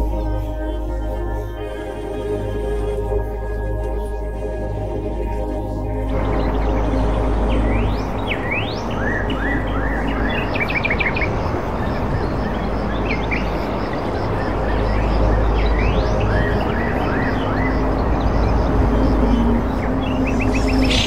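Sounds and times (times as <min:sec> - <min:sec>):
outdoor background noise: 0:00.0 - 0:21.0
birds chirping: 0:04.7 - 0:21.0
low rumble: 0:05.9 - 0:21.0.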